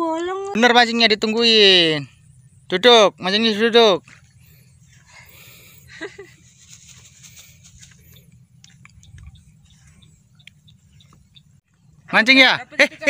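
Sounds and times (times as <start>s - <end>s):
low steady rumble: 0.0s - 13.0s
faint ticks: 7.3s - 11.5s.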